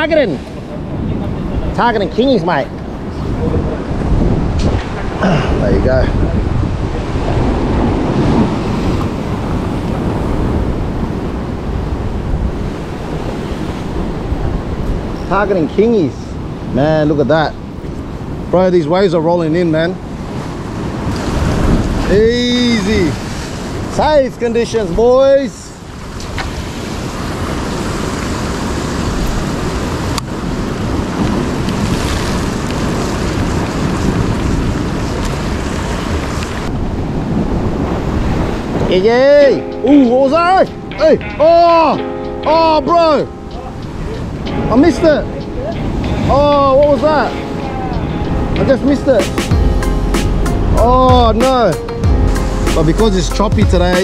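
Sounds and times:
wind rumbling on microphone: 0.0 - 40.9
ocean surf against rocks: 0.0 - 54.0.

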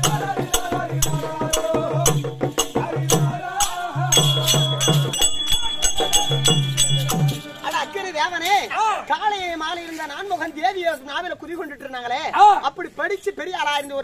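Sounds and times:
sharp percussive strikes: 0.0 - 9.4
wavering melody: 4.2 - 10.0.

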